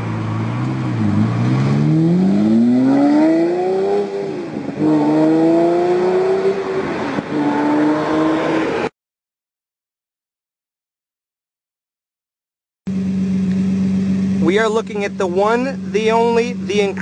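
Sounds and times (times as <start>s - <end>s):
sports car engine accelerating: 0.0s - 8.9s, 12.9s - 17.0s.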